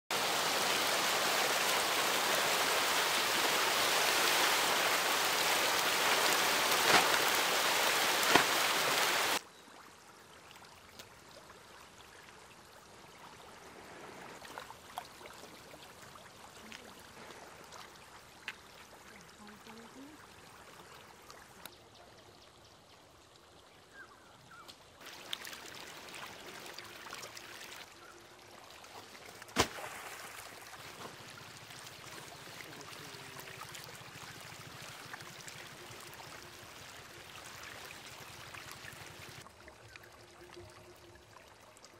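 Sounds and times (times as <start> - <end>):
rush of splashing water: 0.1 - 9.4, 10.4 - 21.6, 25.0 - 39.7
small ticks and splashes: 9.8 - 13.0, 14.4 - 23.7, 24.6 - 41.9.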